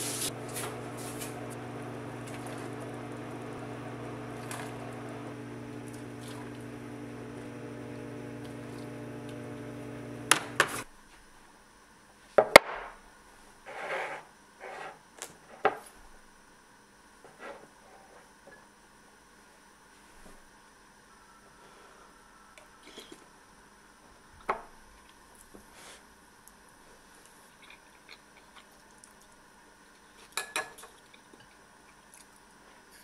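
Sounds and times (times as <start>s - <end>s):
electric appliance hum: 0.0s - 10.9s.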